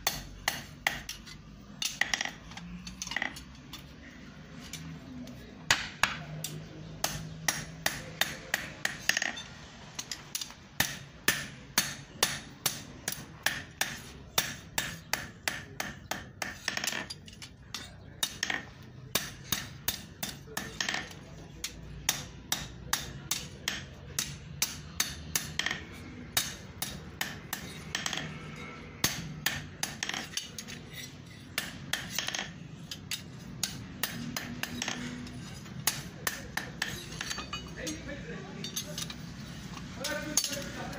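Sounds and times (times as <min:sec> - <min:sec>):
hammer striking iron on anvil: 0:00.0 - 0:02.4, 0:05.7 - 0:17.1, 0:17.7 - 0:38.0.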